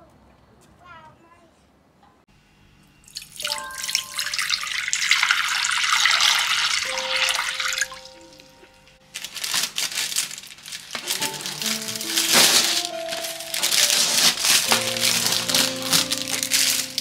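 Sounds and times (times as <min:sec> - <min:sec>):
water running into a glass bowl: 0:03.1 - 0:08.3
water drips: 0:03.1 - 0:09.0.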